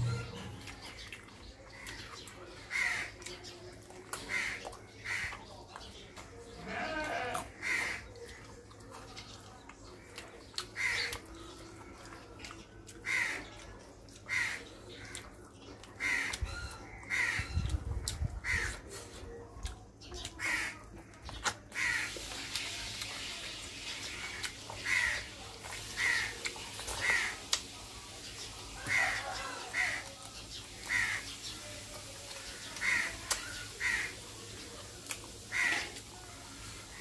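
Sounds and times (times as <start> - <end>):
crows cawing: 2.7 - 3.1, 4.3 - 5.3, 6.8 - 8.1, 10.8 - 11.1, 13.0 - 13.5, 14.3 - 14.6, 16.0 - 16.3, 17.1 - 17.4, 20.4 - 20.8, 21.8 - 22.2, 24.8 - 25.3, 26.0 - 26.3, 27.0 - 27.3, 28.8 - 30.0, 30.9 - 31.3, 32.8 - 33.1, 33.8 - 34.1, 35.5 - 36.0.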